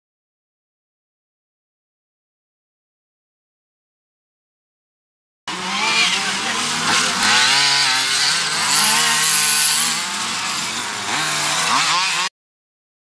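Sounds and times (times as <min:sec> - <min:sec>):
small two-stroke engines revving: 0:05.5 - 0:12.3.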